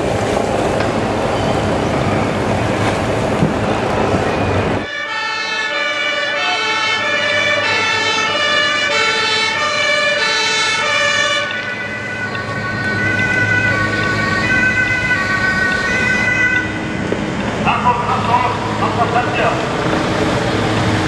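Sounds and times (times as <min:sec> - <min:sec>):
two-tone police siren: 0:04.1 - 0:17.2.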